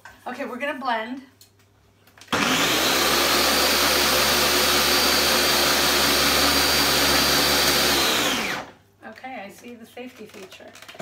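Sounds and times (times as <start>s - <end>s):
blender running with high whine: 2.3s - 8.8s.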